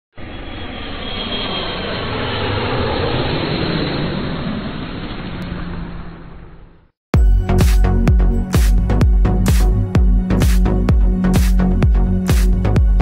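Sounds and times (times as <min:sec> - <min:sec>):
jet airplane passing overhead: 0:00.2 - 0:07.0.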